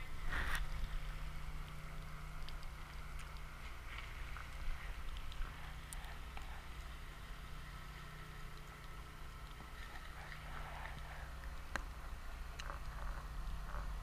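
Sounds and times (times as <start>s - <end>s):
low motor hum: 0.0s - 14.0s
faint clicks: 0.4s - 7.0s.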